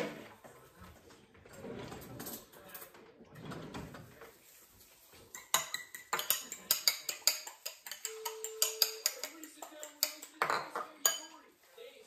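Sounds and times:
egg being whisked in a bowl: 4.4s - 11.7s
utensil clinking against bowl: 5.3s - 11.4s.

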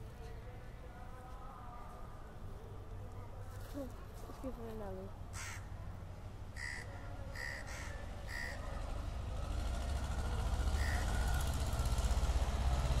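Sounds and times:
vehicle engine rumble: 0.0s - 13.0s
crows cawing: 5.3s - 5.8s, 6.5s - 8.8s, 10.8s - 11.4s.

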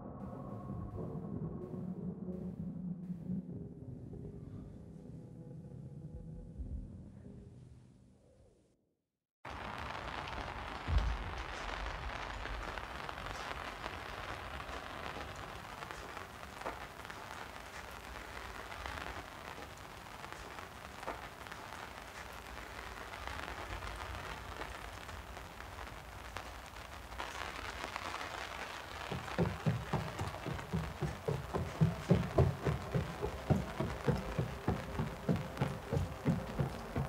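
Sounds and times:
rain hissing: 9.5s - 37.0s
running footsteps: 10.0s - 25.2s, 26.2s - 37.0s.

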